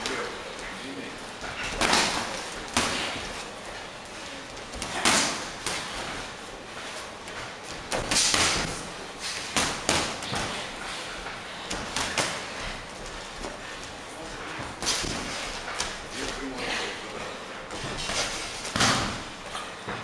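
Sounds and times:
boxing gloves punching: 0:01.5 - 0:03.5, 0:07.6 - 0:10.8, 0:11.6 - 0:12.8, 0:14.6 - 0:16.1, 0:17.7 - 0:19.4.

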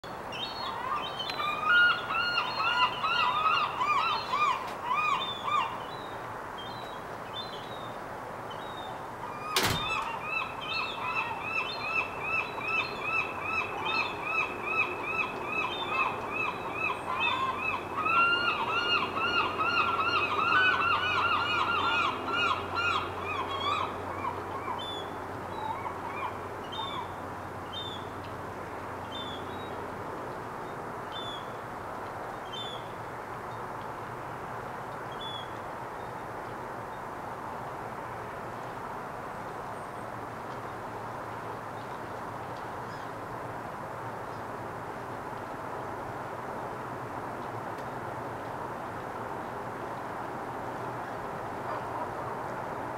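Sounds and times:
gulls calling: 0:00.3 - 0:06.2, 0:09.2 - 0:27.2.

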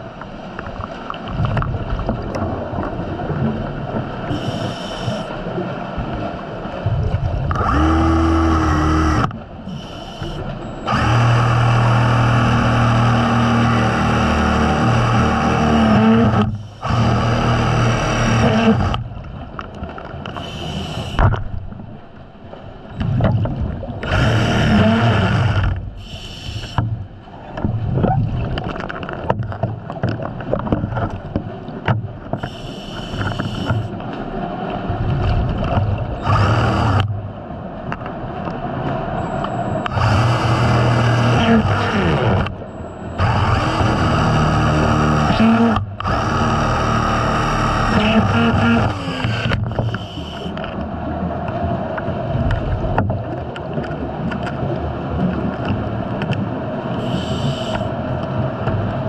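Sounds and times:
exhaled bubbles rumbling: 0:00.0 - 0:09.8, 0:21.1 - 0:26.2, 0:26.8 - 0:32.5, 0:34.6 - 0:43.4
hissing inhalations: 0:20.4 - 0:21.2, 0:49.8 - 0:50.6.

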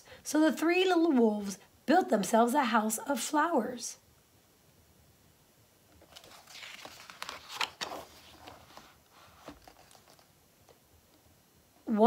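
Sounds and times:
paper page turning: 0:06.0 - 0:10.3.

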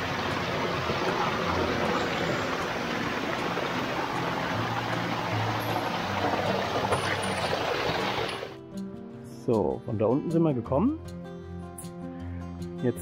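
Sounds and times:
stream cascading over boulders: 0:00.0 - 0:08.6.

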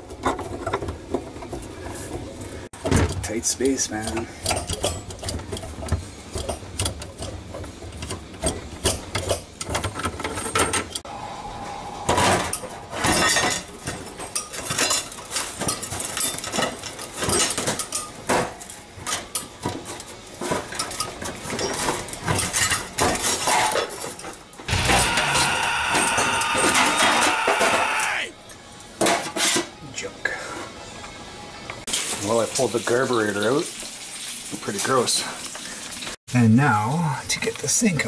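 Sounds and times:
metal parts clinking in a sink: 0:03.9 - 0:11.0.

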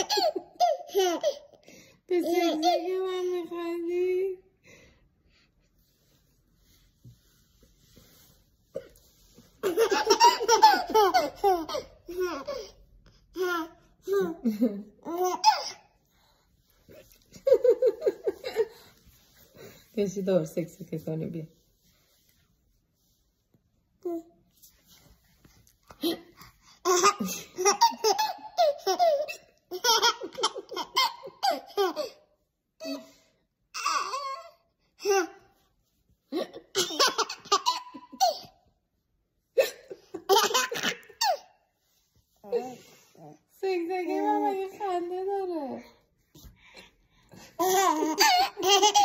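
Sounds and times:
baby belly laughing: 0:00.0 - 0:01.5, 0:09.6 - 0:12.7, 0:13.4 - 0:15.8, 0:25.9 - 0:32.2, 0:36.4 - 0:38.5, 0:47.6 - 0:49.0.

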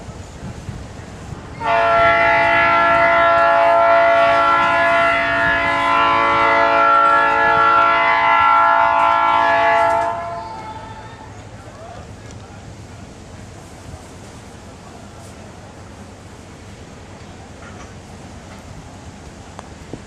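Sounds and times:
locomotive air horn blast: 0:01.6 - 0:11.0.

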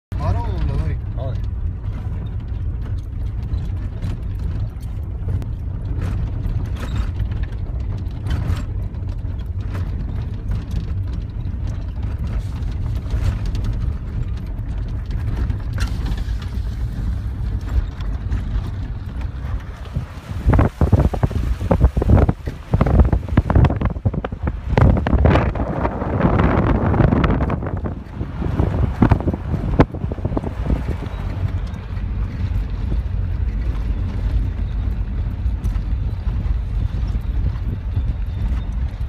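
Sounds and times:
vehicle rumble on dirt road: 0:00.1 - 0:39.0
small knocks and rattles: 0:00.6 - 0:25.6.

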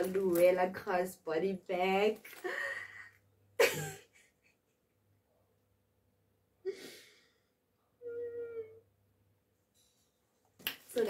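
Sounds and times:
woman sighing: 0:06.6 - 0:08.8.

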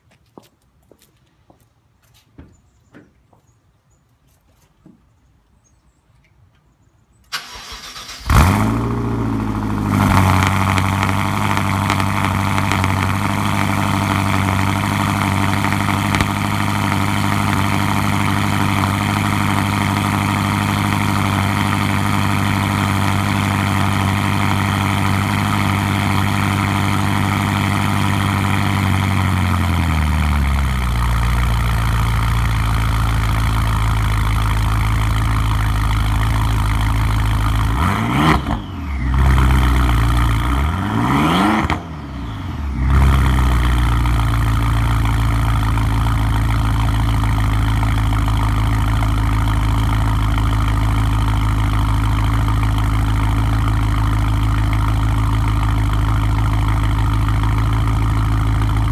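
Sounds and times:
engine starter cranking: 0:07.3 - 0:08.8
engine idling: 0:07.3 - 0:40.9, 0:41.8 - 0:58.9.

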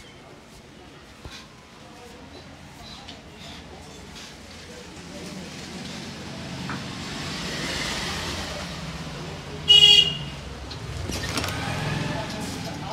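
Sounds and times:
road traffic passing: 0:03.6 - 0:12.9
vehicle horn toot: 0:09.7 - 0:10.3.

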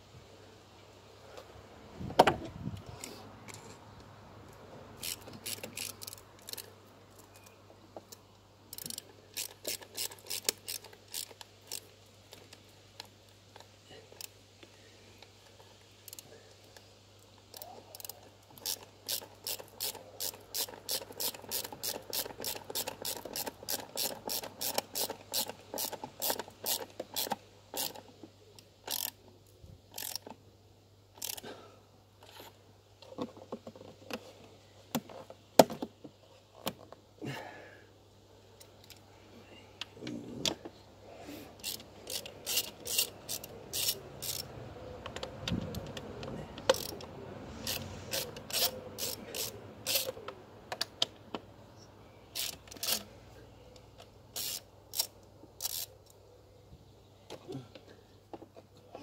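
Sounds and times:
ratchet wrench clicking: 0:05.0 - 0:06.7, 0:08.7 - 0:11.9, 0:17.5 - 0:28.0, 0:28.8 - 0:29.2, 0:29.9 - 0:30.3, 0:31.2 - 0:31.4, 0:41.6 - 0:44.5, 0:46.7 - 0:50.2, 0:52.4 - 0:53.1, 0:54.3 - 0:55.9.

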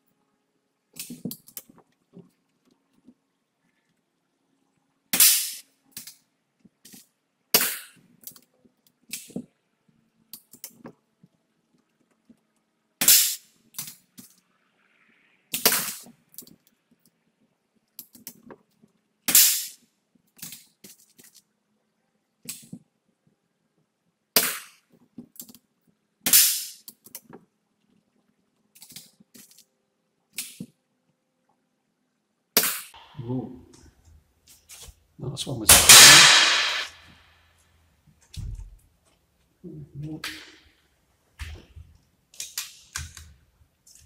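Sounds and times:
air rifle shots cracking: 0:35.7 - 0:37.0.

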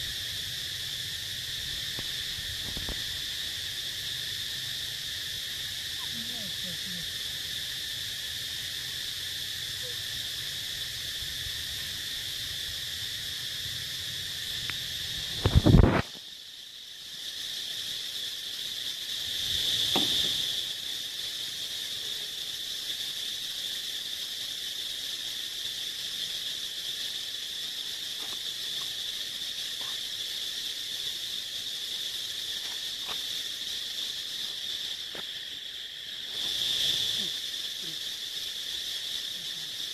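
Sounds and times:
insect chorus droning: 0:00.0 - 0:39.9
loud thump: 0:19.9 - 0:20.4.

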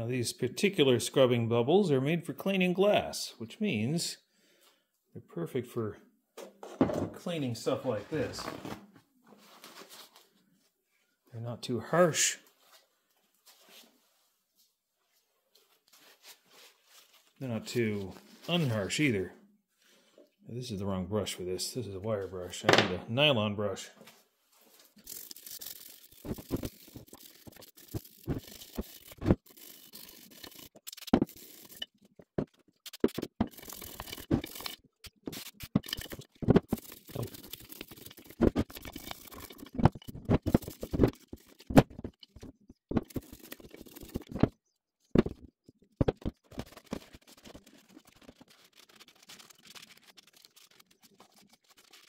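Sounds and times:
brush scrubbing metal: 0:25.0 - 0:31.8, 0:32.8 - 0:41.8, 0:46.1 - 0:52.0.

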